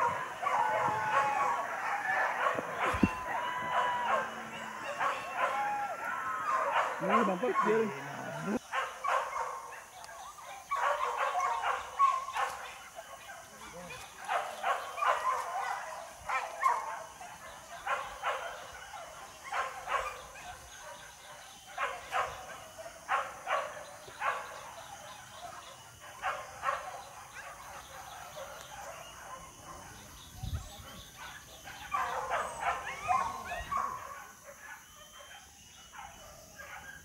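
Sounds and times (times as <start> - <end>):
dogs barking and yelping: 0.0 - 37.0.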